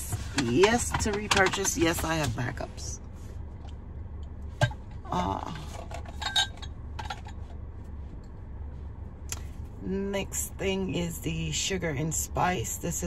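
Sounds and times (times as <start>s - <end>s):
low steady hum: 0.0s - 13.0s
glass jars clinking: 5.6s - 7.4s.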